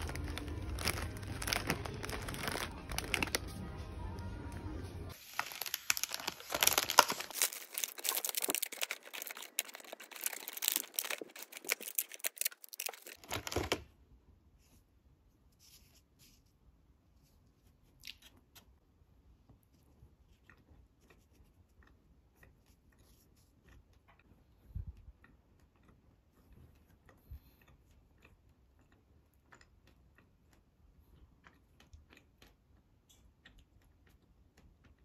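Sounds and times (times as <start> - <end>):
plastic packet tearing and crinkling: 0.0 - 3.6, 5.1 - 13.8
background music: 0.0 - 5.2.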